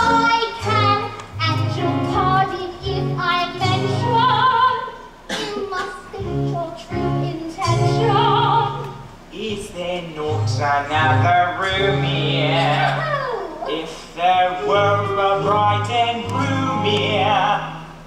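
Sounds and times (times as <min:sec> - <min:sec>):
woman singing with vibrato: 0:00.0 - 0:09.0.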